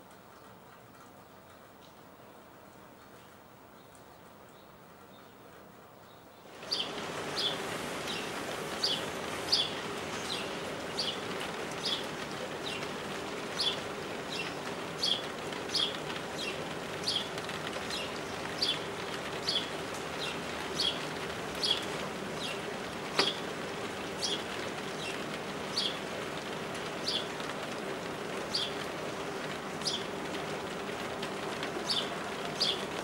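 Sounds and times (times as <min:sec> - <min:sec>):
steady rain: 0:00.0 - 0:33.0
bird chirping: 0:06.0 - 0:11.2, 0:31.8 - 0:32.8.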